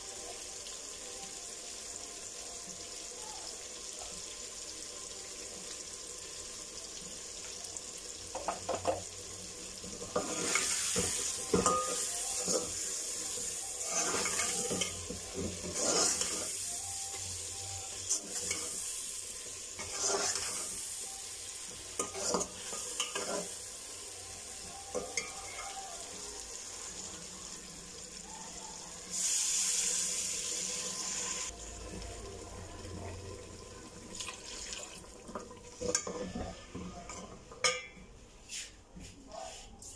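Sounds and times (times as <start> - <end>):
food sizzling in oil: 0.0 - 38.8
spoon scraping metal pot: 13.8 - 16.6, 19.8 - 20.7, 22.0 - 23.6, 35.8 - 38.0.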